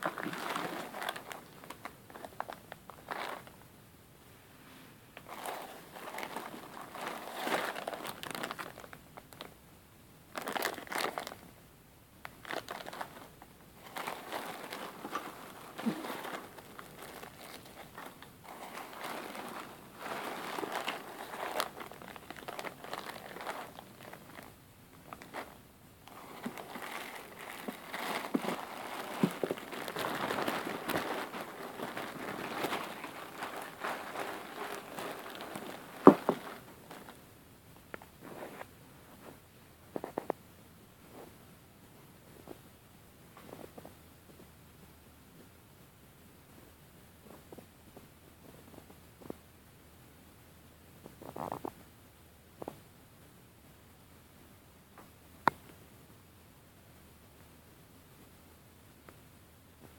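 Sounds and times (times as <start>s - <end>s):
plastic bags crinkling: 0.0s - 3.6s, 5.2s - 9.5s, 10.4s - 11.4s, 12.3s - 37.2s.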